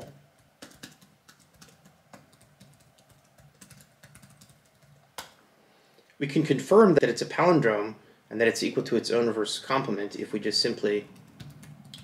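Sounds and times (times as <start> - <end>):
laptop keyboard typing: 0.0 - 5.3, 11.1 - 12.0.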